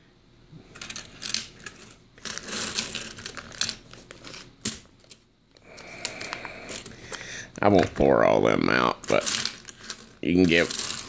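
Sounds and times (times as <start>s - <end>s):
coins clinking on wooden board: 0.8s - 5.2s, 9.0s - 11.0s.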